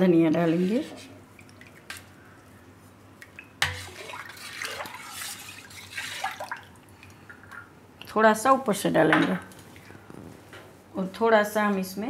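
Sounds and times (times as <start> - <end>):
liquid sloshing: 3.1 - 8.1.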